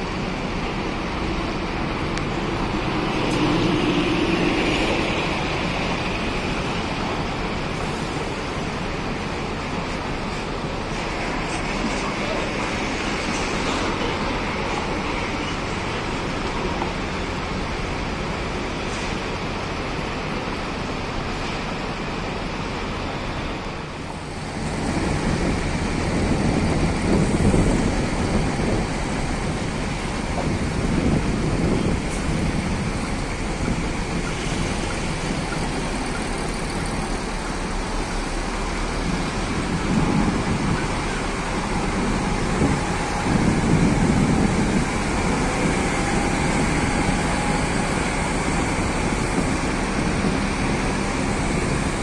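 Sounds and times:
bus diesel engine running: 0:00.0 - 0:52.0.

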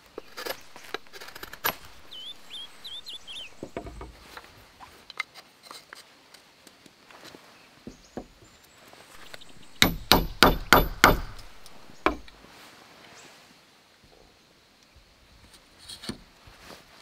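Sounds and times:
tool striking wood: 0:00.2 - 0:02.8, 0:03.4 - 0:04.1, 0:09.2 - 0:12.3.

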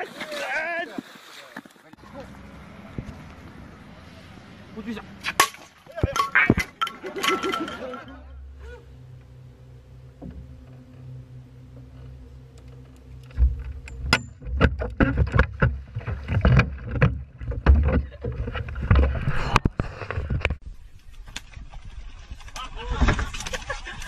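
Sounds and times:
water splashing: 0:00.0 - 0:08.3, 0:13.0 - 0:20.2
low hum on a boat: 0:02.0 - 0:24.0
knocks and thumps against a boat: 0:13.3 - 0:20.6.

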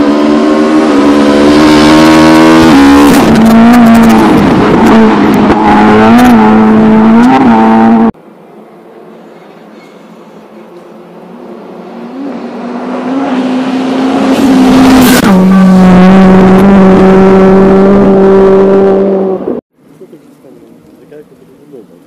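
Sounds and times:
rally car engine at high revs: 0:00.0 - 0:08.2, 0:11.2 - 0:19.6.

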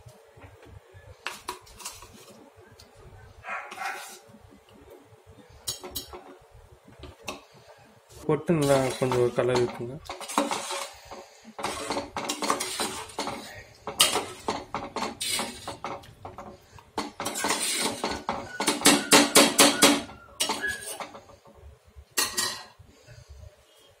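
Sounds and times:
metal ladle scraping pot: 0:01.3 - 0:02.4, 0:03.7 - 0:04.4, 0:05.5 - 0:06.4, 0:08.6 - 0:22.8.

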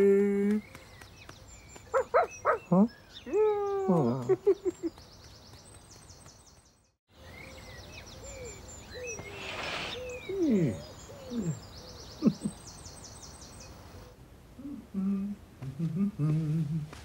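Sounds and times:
small birds chirping: 0:00.0 - 0:14.7
brief rush of noise: 0:09.2 - 0:10.1.

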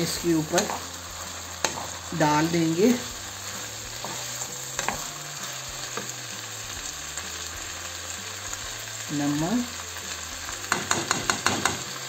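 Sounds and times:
vegetables sizzling in hot oil: 0:00.0 - 0:12.0.

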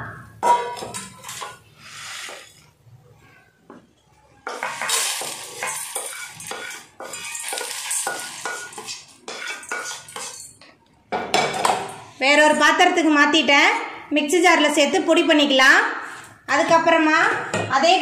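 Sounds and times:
spices scraped in a pan: 0:01.0 - 0:02.7, 0:04.5 - 0:10.6.

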